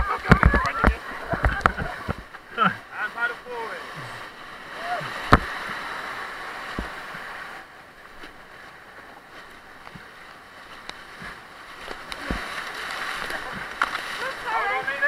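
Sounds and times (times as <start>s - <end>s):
paddle splashes: 0.0s - 15.0s
rushing white water: 0.0s - 15.0s.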